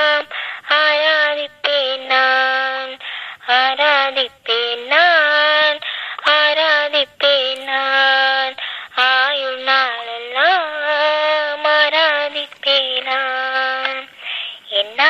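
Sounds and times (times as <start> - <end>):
high voice singing: 0.0 - 15.0.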